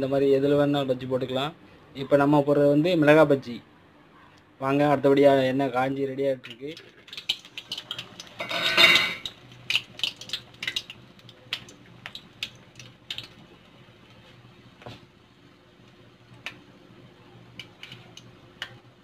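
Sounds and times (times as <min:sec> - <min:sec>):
oil sizzling: 0:06.4 - 0:19.0
oil popping and clicking: 0:06.5 - 0:08.4, 0:09.2 - 0:13.5.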